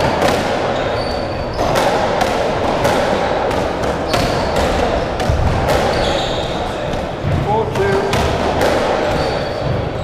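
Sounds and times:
ball cracking off racket and walls: 1.5s - 9.4s.

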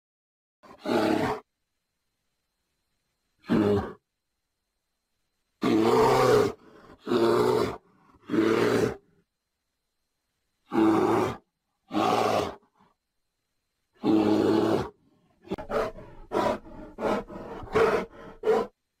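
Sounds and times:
bear roaring: 0.7s - 1.4s, 3.4s - 4.0s, 5.6s - 9.1s, 10.7s - 12.8s, 14.0s - 18.7s.

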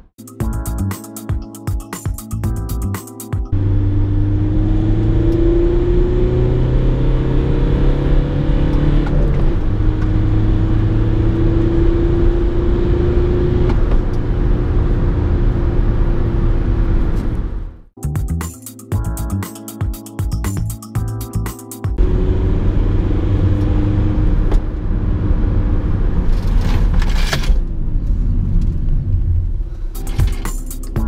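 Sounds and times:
car engine accelerating: 3.5s - 17.8s, 22.0s - 26.6s.

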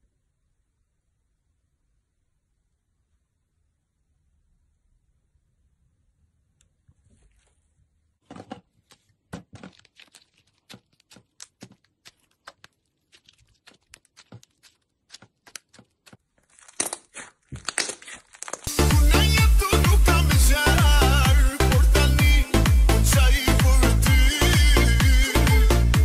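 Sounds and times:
slime popping and clicking: 9.6s - 18.7s.

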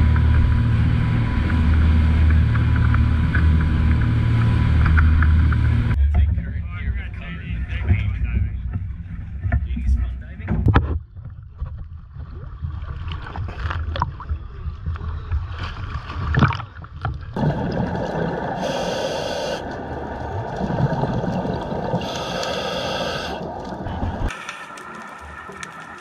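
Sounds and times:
underwater rush: 0.0s - 6.0s, 11.8s - 26.0s
water slapping and splashing: 11.2s - 18.8s, 19.6s - 22.7s, 23.3s - 26.0s
scuba regulator hissing: 18.6s - 19.6s, 22.0s - 23.4s.

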